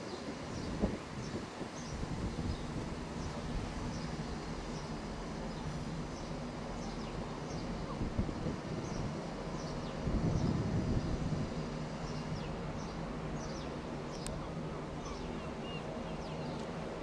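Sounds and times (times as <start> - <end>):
birds chirping: 0.0 - 8.0, 11.9 - 16.8
diesel train engine rumble: 0.0 - 17.0.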